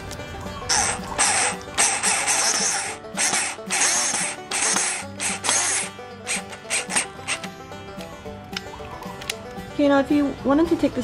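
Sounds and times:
background music: 0:00.0 - 0:11.0
cordless drill driving screw: 0:00.7 - 0:07.5.

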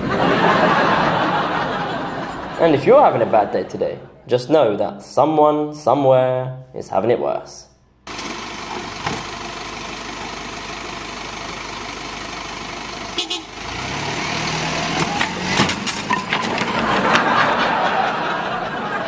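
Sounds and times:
truck engine revving: 0:08.1 - 0:18.8
piano smashing onto road: 0:14.5 - 0:17.6
rattling debris: 0:14.9 - 0:17.6.

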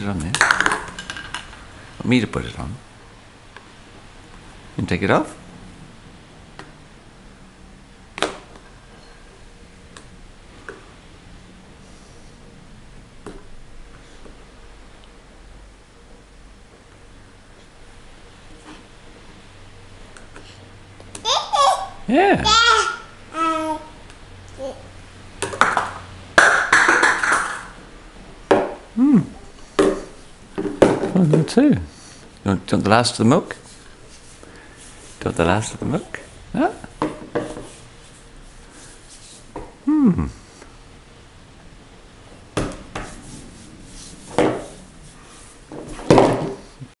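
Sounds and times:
toddler vocal sound: 0:21.2 - 0:24.9.

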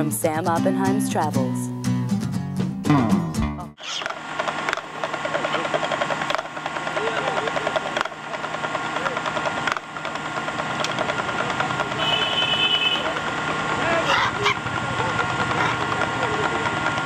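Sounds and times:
voices: 0:00.0 - 0:01.7, 0:03.8 - 0:17.0
busy street noise: 0:00.0 - 0:01.8, 0:03.4 - 0:17.0
fast continuous rattling: 0:03.9 - 0:17.0.

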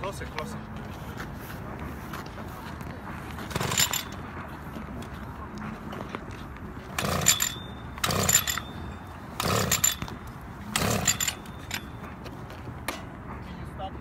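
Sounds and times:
pull-cord whirring rasp: 0:09.4 - 0:11.8.

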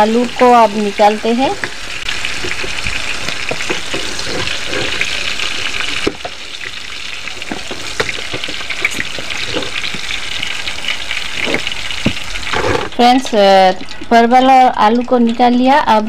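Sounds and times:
vegetables sizzling in oil: 0:00.0 - 0:16.0
spatula scraping a pan: 0:01.3 - 0:13.0
spatula knocking a pan: 0:02.4 - 0:05.1, 0:06.0 - 0:06.8, 0:07.4 - 0:10.1.

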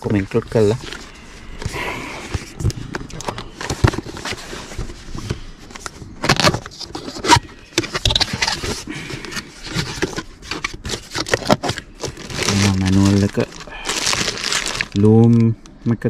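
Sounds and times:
plastic wrapping rustling: 0:00.0 - 0:15.5.

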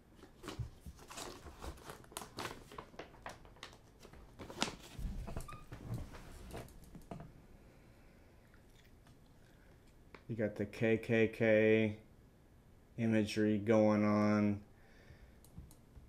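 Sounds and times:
paper booklet crinkling: 0:00.2 - 0:05.4.

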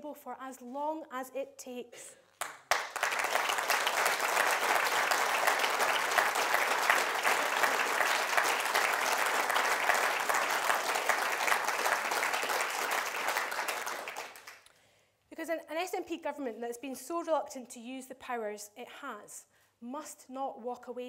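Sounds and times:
audience applauding: 0:02.4 - 0:14.6.

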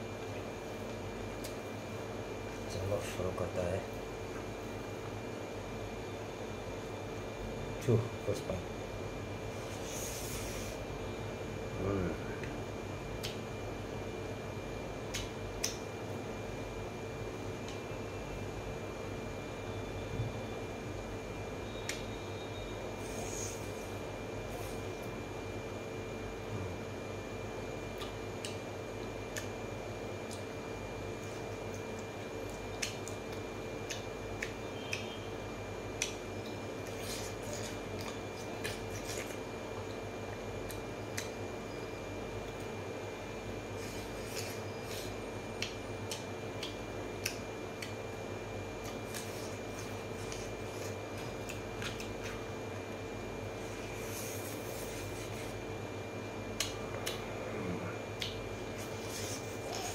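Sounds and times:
steady hum: 0:00.0 - 0:59.9
chewing and mouth sounds: 0:27.9 - 0:29.6, 0:30.2 - 0:35.2, 0:35.9 - 0:41.4, 0:43.8 - 0:48.1, 0:48.8 - 0:52.6, 0:56.5 - 0:57.3, 0:58.1 - 0:59.9.

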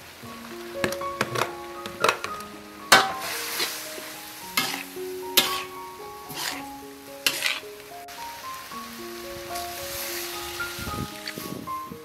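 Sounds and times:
food sizzling in a wok: 0:02.9 - 0:11.8
metal spatula scraping a wok: 0:04.6 - 0:07.6.

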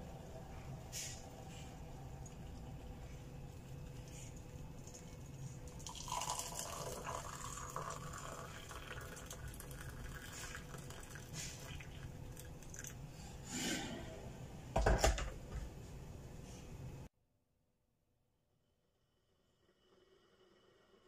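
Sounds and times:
water pouring into a cup: 0:02.1 - 0:13.0.

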